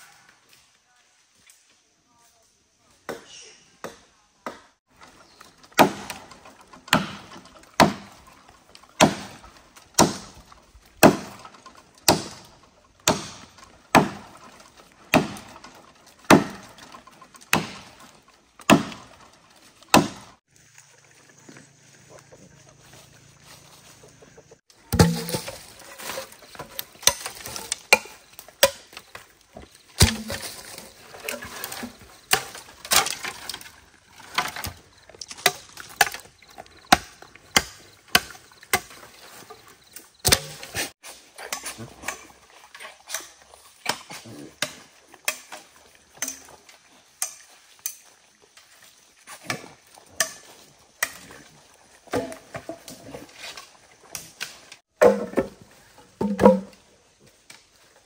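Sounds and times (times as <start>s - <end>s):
chopping strikes: 5.7s - 8.2s, 9.0s - 9.4s, 10.0s - 10.4s, 11.0s - 14.5s, 15.1s - 15.7s, 16.3s - 19.2s, 19.9s - 20.3s, 24.8s - 29.0s, 30.0s - 33.6s, 36.9s - 39.0s, 40.2s - 40.9s, 56.2s - 56.8s.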